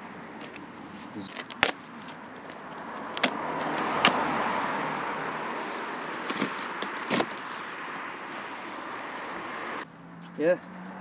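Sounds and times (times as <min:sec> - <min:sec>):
cardboard rustling and tearing: 0:00.4 - 0:03.3, 0:06.2 - 0:07.7.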